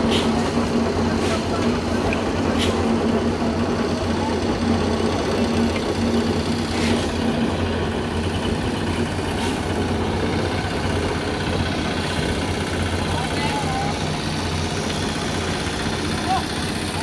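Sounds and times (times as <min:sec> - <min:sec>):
small engine humming: 0:00.0 - 0:17.0.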